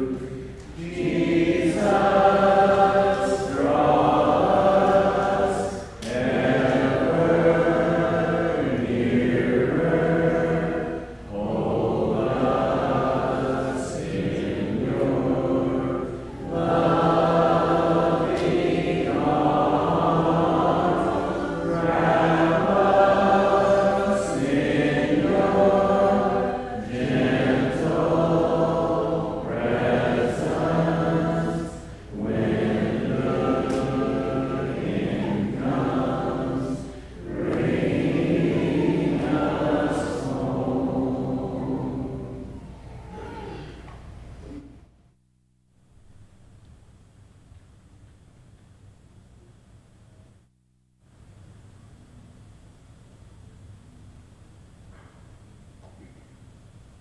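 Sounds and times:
congregation singing a hymn: 0:00.0 - 0:43.6.

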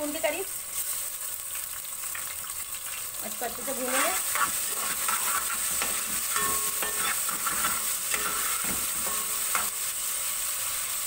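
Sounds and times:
spices sizzling in hot oil: 0:00.0 - 0:11.0
spoon scraping a pot: 0:03.7 - 0:09.8.

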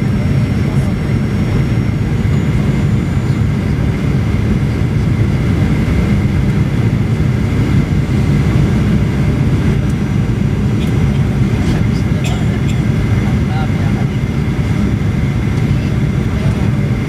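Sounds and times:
faint high whine: 0:00.0 - 0:08.3
jet engine cabin rumble: 0:00.0 - 0:17.0.

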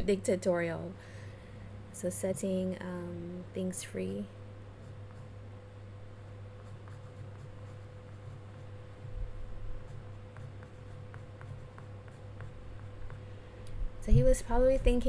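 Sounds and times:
pen scratching on paper: 0:06.6 - 0:08.7, 0:09.8 - 0:13.2.

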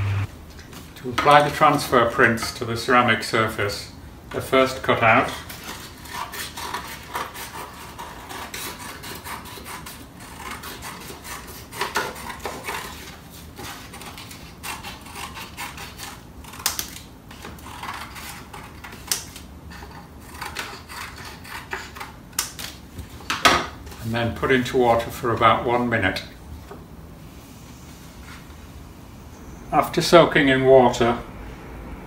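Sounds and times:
scissors snipping paper: 0:08.4 - 0:22.8.

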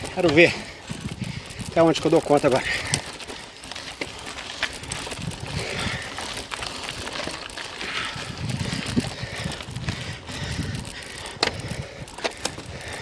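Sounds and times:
bicycle riding noise: 0:00.0 - 0:13.0
bike clicks and rattles: 0:00.0 - 0:13.0
wind on microphone: 0:00.6 - 0:01.8, 0:04.8 - 0:06.1, 0:08.0 - 0:12.9.

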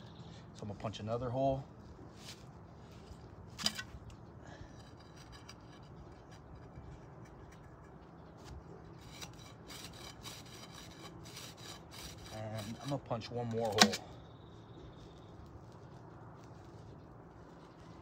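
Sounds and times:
metal probe scraping soil: 0:00.8 - 0:14.2.

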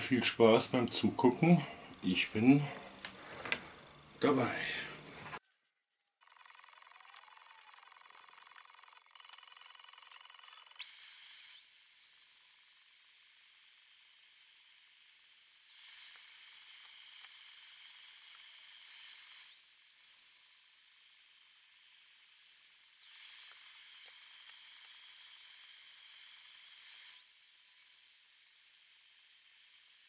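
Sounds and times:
electric router high whine: 0:06.2 - 0:30.0
router bit cutting board: 0:06.2 - 0:30.0.

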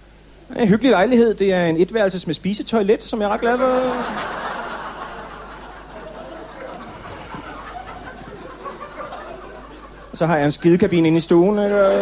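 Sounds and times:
murmur of voices: 0:03.4 - 0:10.1
audience laughing: 0:03.4 - 0:12.0.

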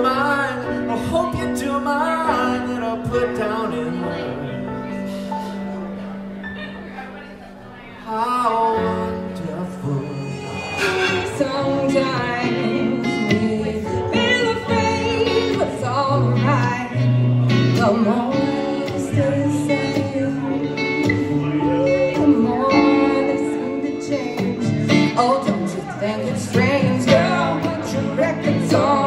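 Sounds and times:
keyboard: 0:00.0 - 0:29.0
woman singing: 0:08.1 - 0:29.0
plucked acoustic guitar: 0:08.6 - 0:29.0.

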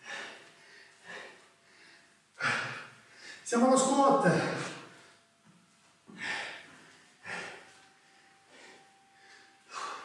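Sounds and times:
man breathing hard: 0:00.0 - 0:03.5, 0:06.1 - 0:10.0.

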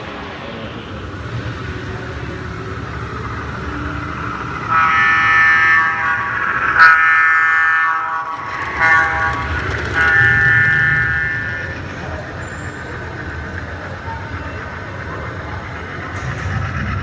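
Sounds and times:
model train rumbling on track: 0:00.0 - 0:17.0
model locomotive horn blasts: 0:04.6 - 0:11.8.

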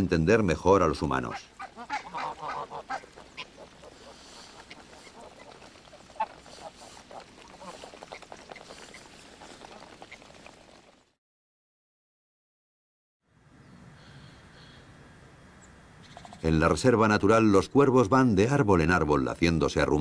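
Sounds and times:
geese honking and gabbling: 0:01.1 - 0:11.0.

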